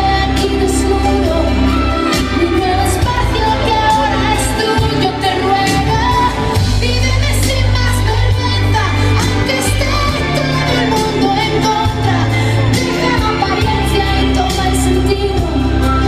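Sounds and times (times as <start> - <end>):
pop song with singer: 0.0 - 16.0.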